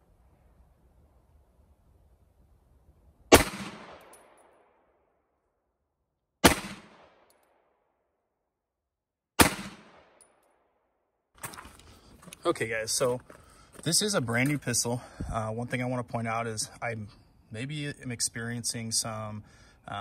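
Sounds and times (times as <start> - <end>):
pistol shots with echo: 3.3 - 4.8, 6.4 - 7.4, 9.4 - 10.4.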